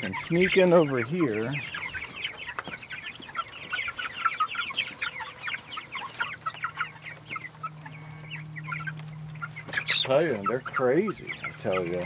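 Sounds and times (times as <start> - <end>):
chicks peeping: 0.0 - 12.0
steady low hum: 5.1 - 12.0.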